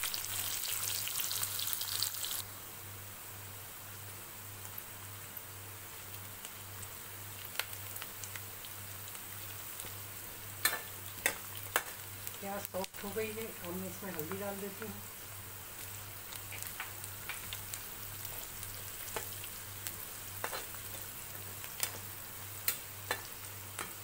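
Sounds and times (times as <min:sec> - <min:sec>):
onions sizzling in hot oil: 0:00.0 - 0:24.0.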